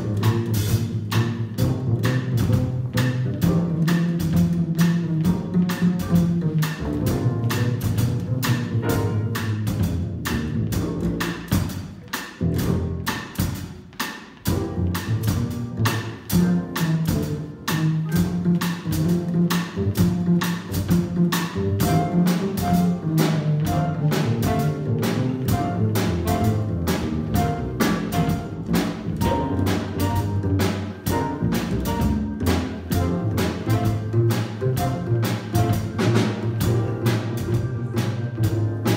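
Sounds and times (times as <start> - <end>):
drum kit: 0.0 - 38.9
upright bass walking: 0.0 - 38.9
flute melody: 16.4 - 19.0.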